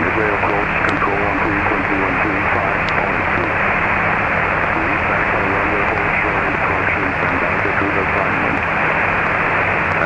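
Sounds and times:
faint voice over radio: 0.0s - 3.6s, 4.7s - 8.6s
low hum: 0.0s - 10.0s
radio hiss: 0.0s - 10.0s.

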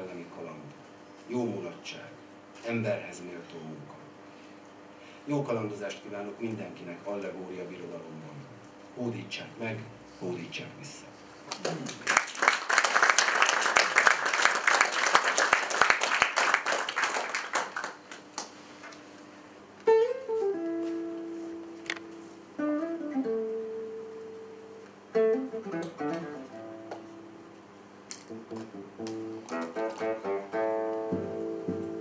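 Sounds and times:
audience applause: 11.5s - 18.5s
classical guitar playing: 19.8s - 27.6s, 28.3s - 32.0s.

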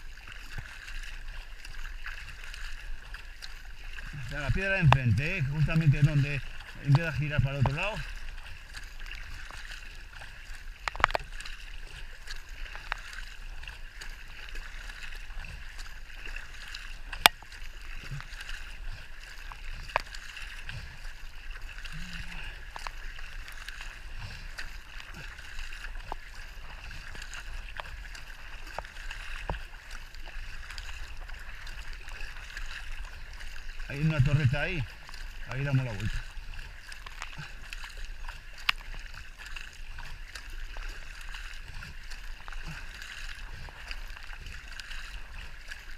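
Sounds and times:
water hissing along a kayak: 0.0s - 45.9s
paddle clicks and knocks: 9.5s - 14.3s, 14.9s - 18.8s.

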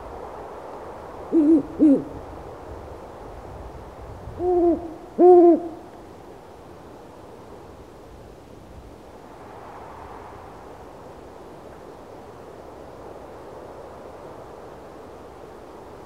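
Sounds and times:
soft background hiss: 0.0s - 16.0s
owl hooting: 1.3s - 2.2s, 4.4s - 6.0s.

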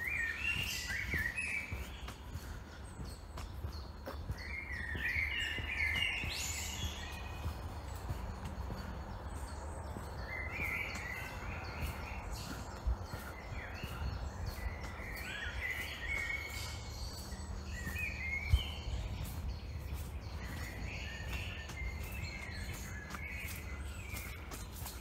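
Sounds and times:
footsteps on a dirt path: 0.0s - 25.0s
songbirds singing: 0.0s - 25.0s
steady low rumble: 0.1s - 24.9s.

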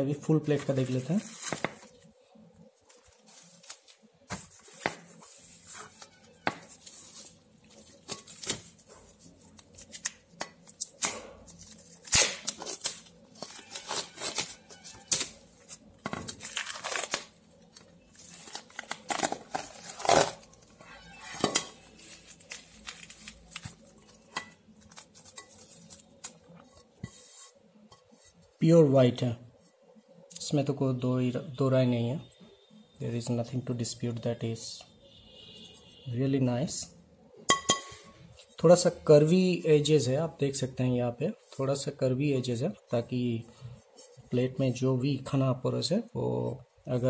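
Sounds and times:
plastic shrink wrap crinkling: 0.4s - 27.4s.

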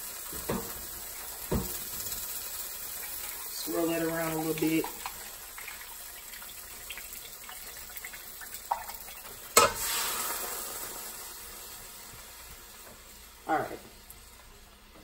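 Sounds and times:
liquid sizzling in hot skillet: 0.0s - 15.0s
can knocking against skillet: 0.3s - 0.8s, 1.4s - 2.0s.

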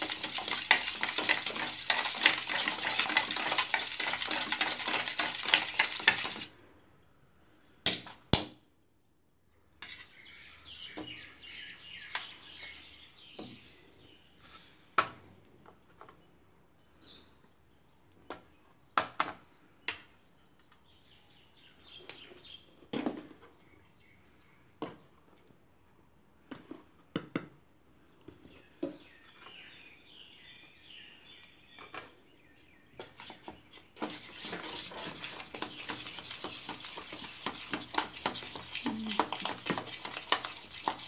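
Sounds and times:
spoon beating eggs in tin: 0.0s - 6.5s, 34.0s - 41.0s.

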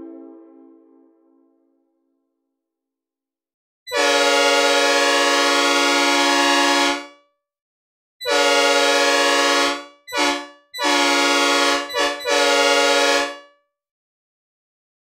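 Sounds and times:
synthesized train horn blasts: 0.0s - 1.5s, 3.9s - 7.2s, 8.2s - 13.5s.

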